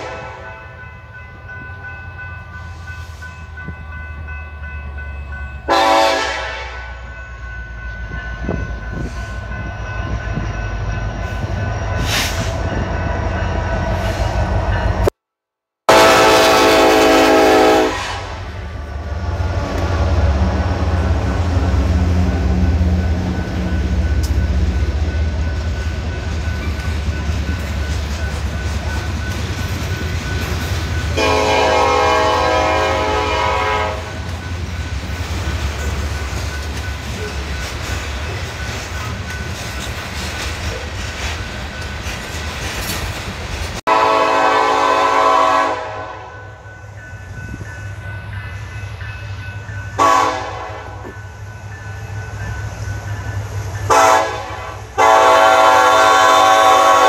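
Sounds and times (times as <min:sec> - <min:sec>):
diesel locomotive horn: 0:00.0 - 0:00.7, 0:05.6 - 0:07.2, 0:15.9 - 0:23.0, 0:31.1 - 0:34.4, 0:43.9 - 0:46.7, 0:49.9 - 0:51.2, 0:53.9 - 0:57.0.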